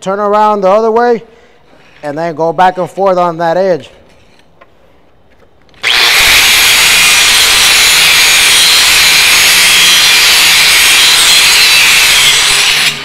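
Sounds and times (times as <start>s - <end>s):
angle grinder grinding steel: 5.8s - 13.0s.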